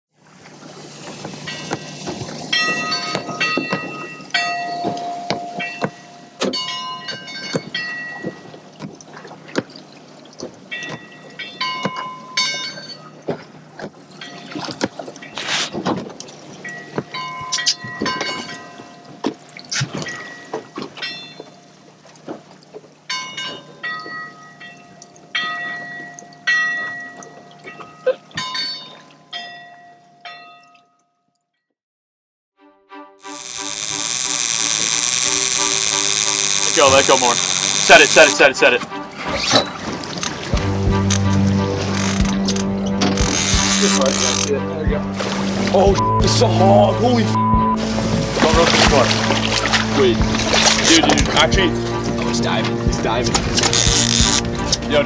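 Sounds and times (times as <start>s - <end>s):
bell buoy clanging: 1.2s - 8.9s, 10.6s - 15.5s, 16.5s - 21.8s, 23.0s - 31.2s, 36.1s - 55.0s
buoy bell clanging: 1.4s - 8.6s, 10.7s - 13.1s, 16.6s - 19.2s, 23.1s - 31.1s.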